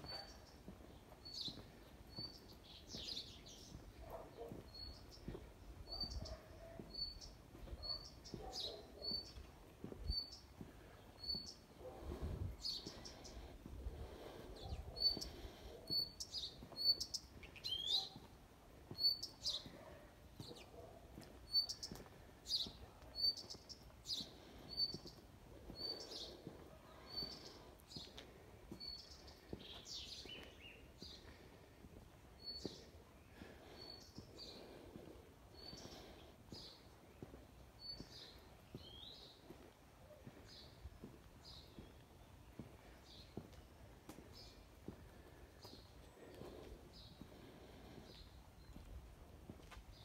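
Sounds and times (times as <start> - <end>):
bird chirping high: 15.0 - 18.2.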